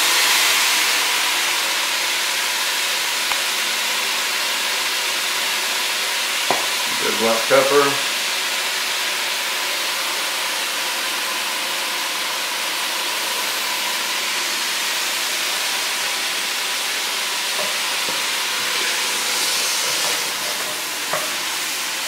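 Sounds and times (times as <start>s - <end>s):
vegetables sizzling in a pot: 0.0s - 22.0s.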